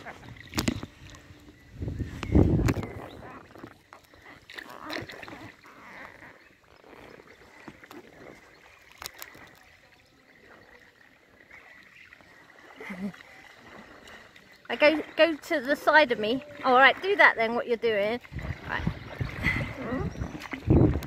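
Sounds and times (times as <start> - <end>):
water lapping around kayak: 0.0 - 21.0.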